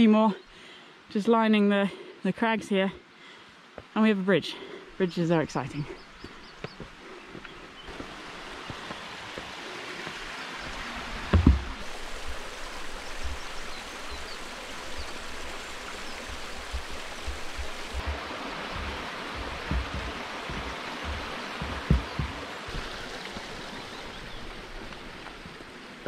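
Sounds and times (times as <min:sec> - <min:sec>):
stream rushing over stones: 0:07.9 - 0:26.0
soft low knocks: 0:16.4 - 0:22.9.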